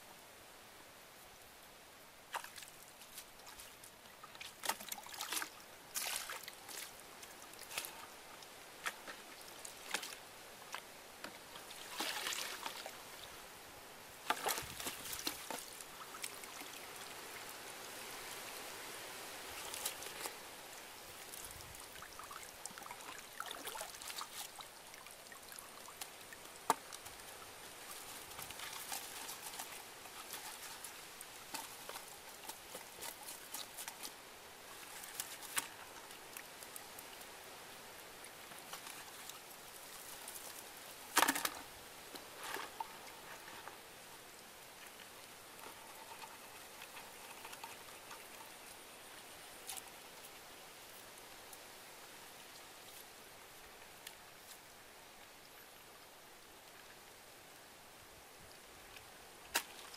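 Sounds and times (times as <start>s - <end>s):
water trickling and splashing: 1.4s - 59.9s
clicks and rustles: 40.0s - 43.8s, 45.6s - 48.7s.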